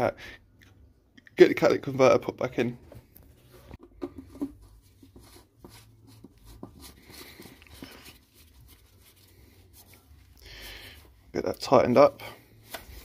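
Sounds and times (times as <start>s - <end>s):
soft rubbing rustle: 3.0s - 13.0s.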